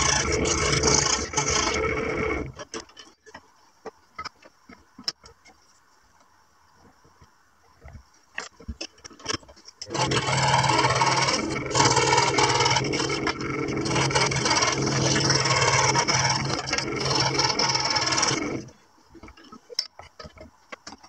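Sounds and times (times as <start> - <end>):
saw blade rasping through wood: 0.0 - 2.6, 9.9 - 18.7
scroll saw humming: 0.0 - 2.7, 9.8 - 18.8.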